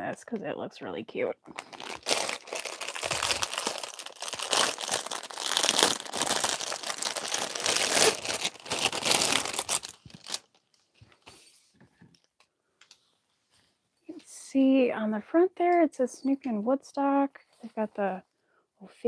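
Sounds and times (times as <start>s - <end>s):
plastic packaging crinkling: 1.5s - 11.2s.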